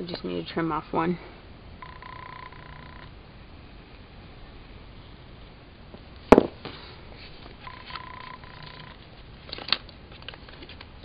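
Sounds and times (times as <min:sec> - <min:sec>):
electronic beep: 0:01.8 - 0:03.1, 0:07.6 - 0:09.0.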